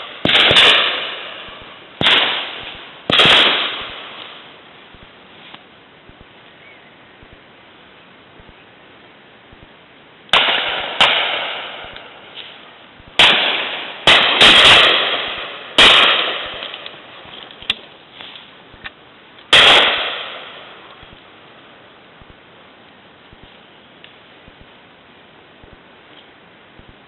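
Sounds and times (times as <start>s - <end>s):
distant gunshots: 0.0s - 4.4s, 10.3s - 12.2s, 13.1s - 17.0s, 19.5s - 20.7s
loud shotgun shots echoing: 0.0s - 4.4s, 10.3s - 12.2s, 13.2s - 17.0s, 19.5s - 20.7s.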